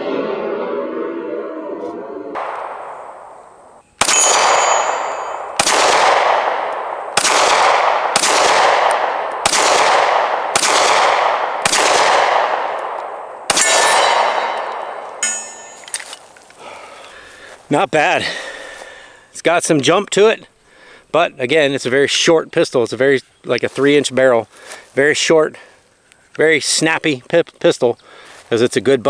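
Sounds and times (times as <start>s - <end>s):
pistol shots echoing: 2.4s - 15.8s
bullets clanging on steel targets: 4.0s - 5.6s, 13.5s - 16.4s.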